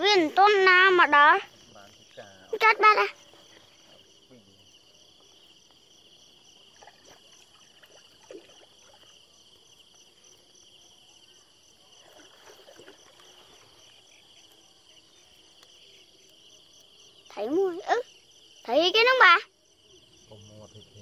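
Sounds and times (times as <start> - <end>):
crickets chirring: 0.0 - 21.0
water splashing and dripping: 6.6 - 9.3, 12.0 - 14.0.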